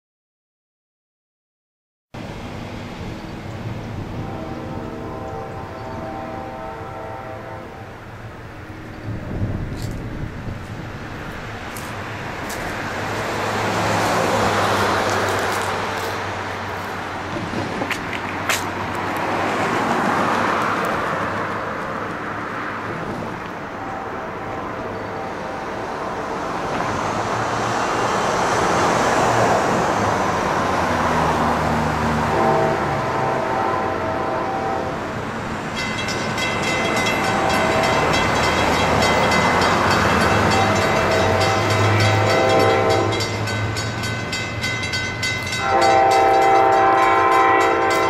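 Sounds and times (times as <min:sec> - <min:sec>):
cars driving past: 0:02.2 - 0:48.0.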